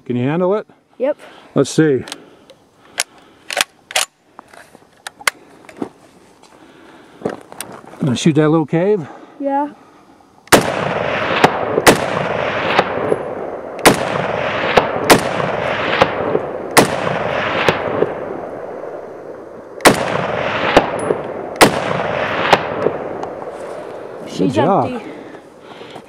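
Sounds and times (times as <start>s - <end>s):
rifle shots echoing: 10.5s - 24.2s.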